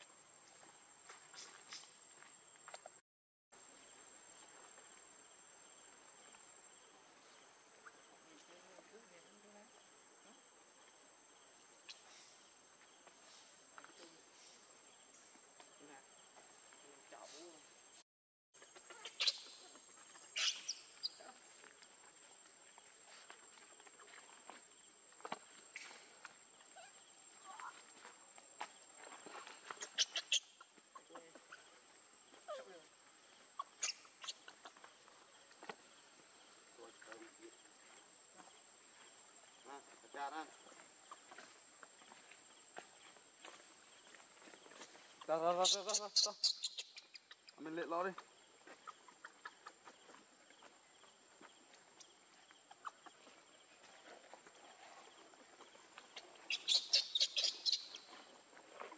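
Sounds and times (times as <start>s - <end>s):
monkey calls: 18.8s - 21.2s, 29.6s - 35.2s, 45.2s - 50.2s, 52.6s - 53.4s, 56.1s - 58.1s.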